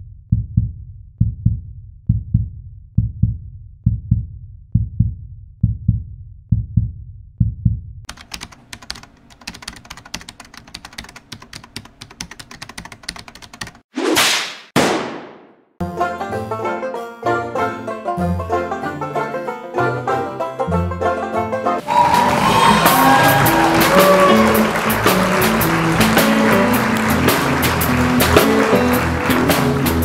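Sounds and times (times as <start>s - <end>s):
heartbeat-like double thump: 0.3s - 8.0s
fast dense clicking: 8.1s - 13.8s.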